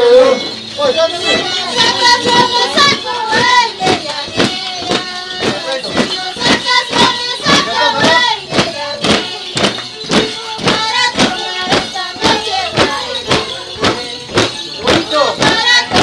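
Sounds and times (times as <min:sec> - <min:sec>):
steady beat of sharp strikes: 0:01.2 - 0:16.0.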